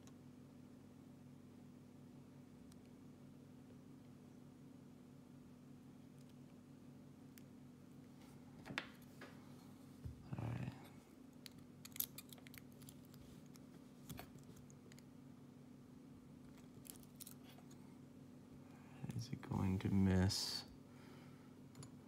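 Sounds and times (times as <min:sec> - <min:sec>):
low steady hum: 0:00.0 - 0:22.0
metallic lock pick clicks: 0:11.5 - 0:13.0.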